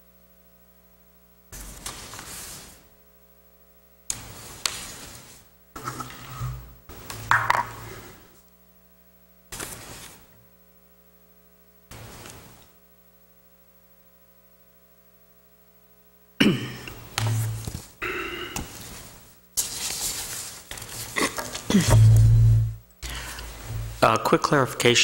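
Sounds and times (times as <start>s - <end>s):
electrical hum: 0.0s - 25.0s
paper rustling: 1.6s - 2.9s, 4.1s - 6.6s, 9.6s - 10.3s, 11.9s - 12.7s, 17.1s - 18.0s, 18.6s - 22.0s.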